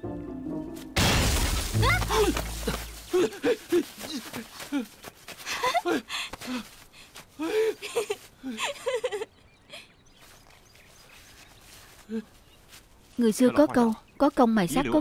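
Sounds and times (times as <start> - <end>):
people laughing: 1.8 - 6.1, 7.4 - 9.3.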